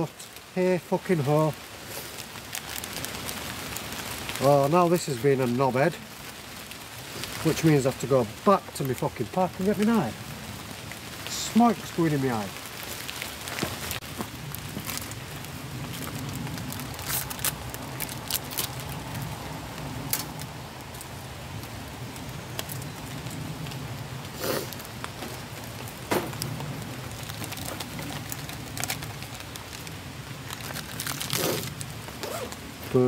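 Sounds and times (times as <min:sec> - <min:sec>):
wood fire crackling: 0:00.0 - 0:33.0.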